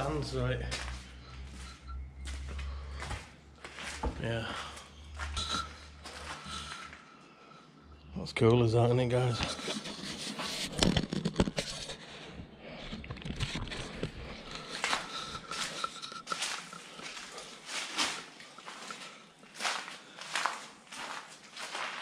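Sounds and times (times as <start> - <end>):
footsteps on concrete floor: 0.0 - 7.0, 14.4 - 22.0.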